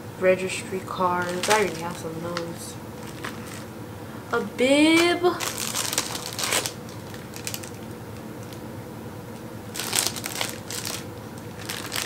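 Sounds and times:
plastic packaging crinkling: 1.0 - 3.7, 4.9 - 8.6, 9.7 - 12.0.

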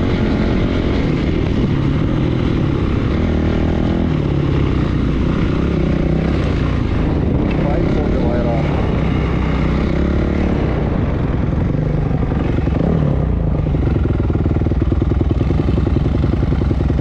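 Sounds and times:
dirt bike engine idling: 4.2 - 17.0.

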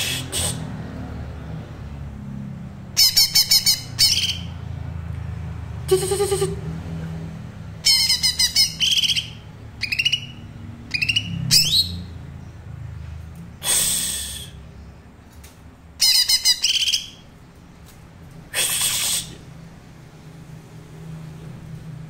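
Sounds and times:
bird chirping song: 3.0 - 4.7, 7.8 - 12.7, 16.0 - 17.5
harsh hissing bursts: 13.6 - 14.6, 18.5 - 19.5.

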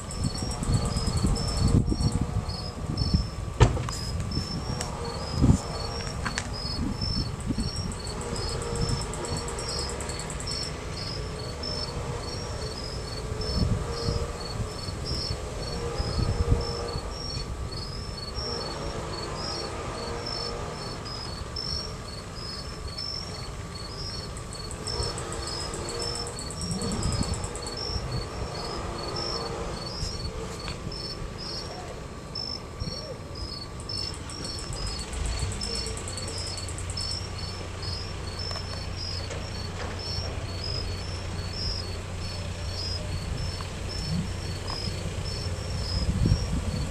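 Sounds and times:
crickets chirping: 0.0 - 46.9
dull thumps: 3.6 - 4.1.

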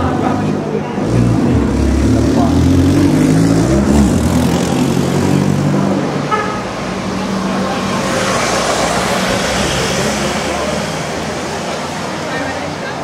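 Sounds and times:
car horn toot: 6.3 - 6.7.

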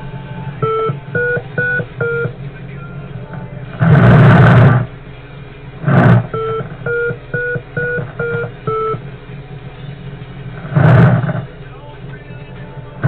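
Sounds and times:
hissing static: 0.0 - 13.0
low hum: 0.0 - 13.0
short electronic beeps: 0.6 - 2.4, 6.0 - 9.0.

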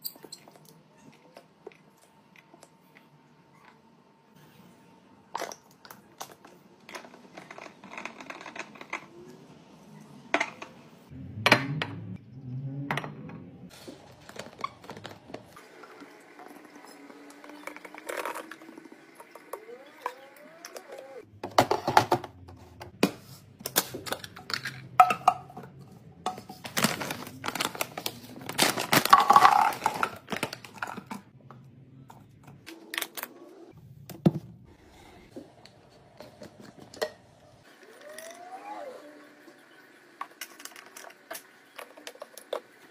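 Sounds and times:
plastic bottles clicking and knocking: 23.6 - 31.3.

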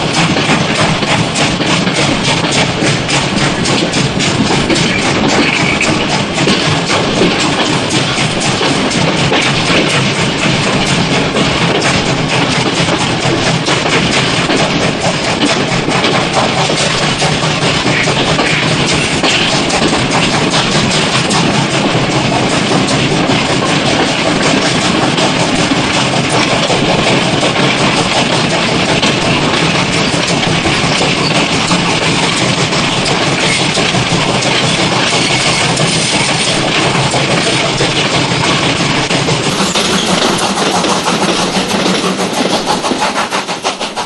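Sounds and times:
steam train running fast: 0.0 - 44.0.

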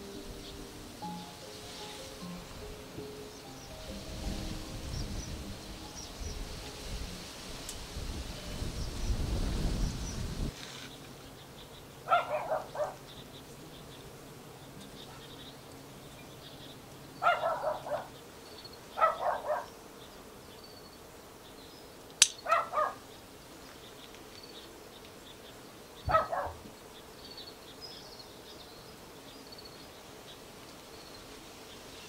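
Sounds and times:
dog barking: 12.1 - 13.0, 17.2 - 18.1, 19.0 - 19.7, 22.4 - 23.0, 26.1 - 26.6
sharp click: 22.1 - 22.5.

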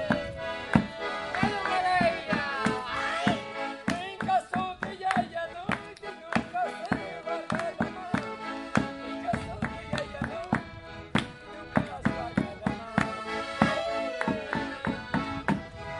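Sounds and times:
man singing: 0.0 - 0.6, 1.3 - 8.4
accordions playing folk tune: 0.0 - 15.9.

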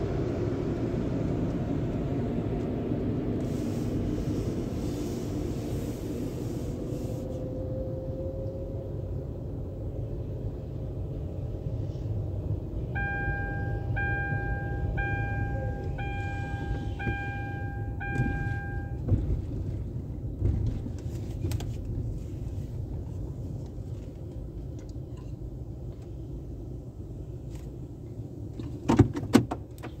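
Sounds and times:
car cabin rumble: 12.8 - 26.2
chime beeping: 13.0 - 19.0.

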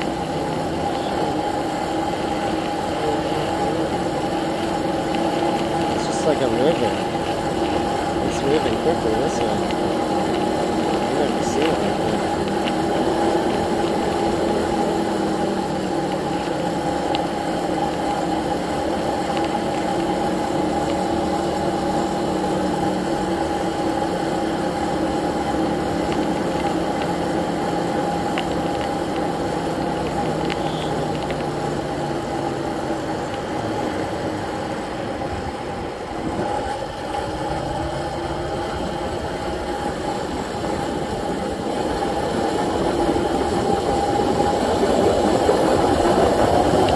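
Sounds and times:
electric bike motor whining: 0.0 - 46.9.

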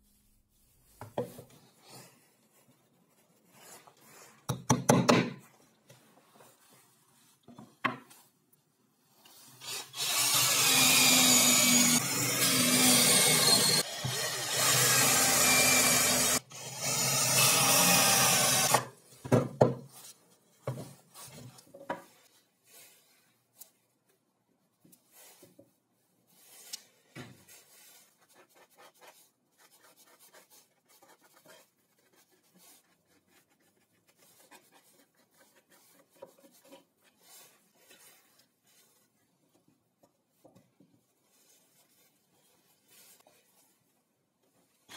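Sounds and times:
cordless drill boring into wood: 9.6 - 18.8.

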